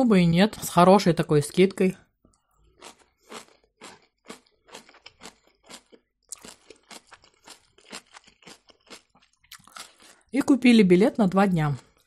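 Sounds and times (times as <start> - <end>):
chewing crunchy food: 2.3 - 10.3, 11.6 - 12.0.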